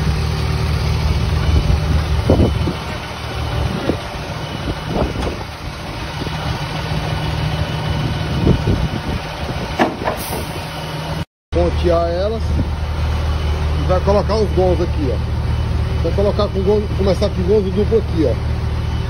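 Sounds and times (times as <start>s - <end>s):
engine idling: 0.0s - 19.0s.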